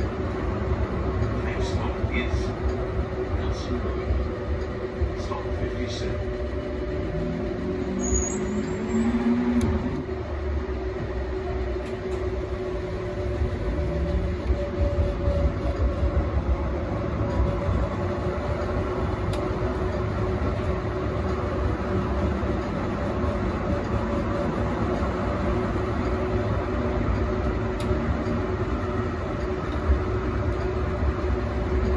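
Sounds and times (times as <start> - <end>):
wheels rumbling on rail: 0.0 - 31.9.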